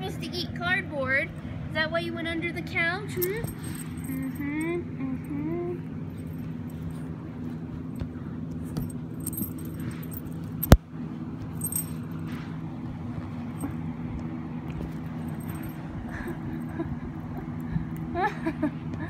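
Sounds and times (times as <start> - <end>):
steady low hum: 0.0 - 19.0
collar tags jingling: 3.1 - 4.8, 6.1 - 7.1, 8.6 - 10.8, 11.5 - 12.5, 14.8 - 16.7.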